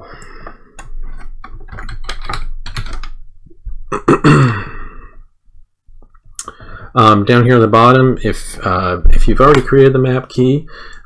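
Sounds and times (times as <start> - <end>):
typing on computer keyboard: 0.8 - 3.2.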